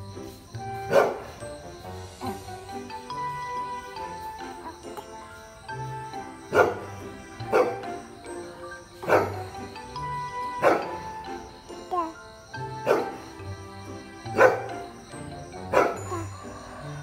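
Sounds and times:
background music: 0.0 - 17.0
dog barking: 0.8 - 1.3, 6.5 - 6.9, 7.5 - 8.0, 9.0 - 9.5, 10.6 - 11.0, 12.8 - 13.2, 14.3 - 14.8, 15.7 - 16.6.

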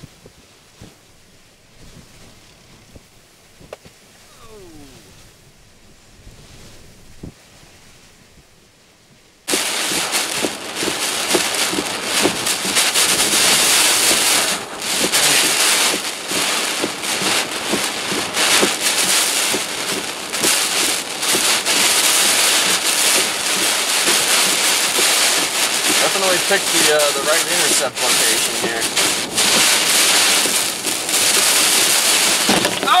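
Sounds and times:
rain pelting car windshield: 9.5 - 33.0.

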